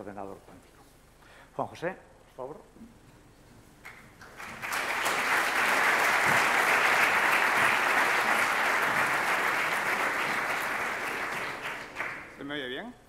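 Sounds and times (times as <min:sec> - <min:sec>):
audience applauding: 0:03.8 - 0:12.6.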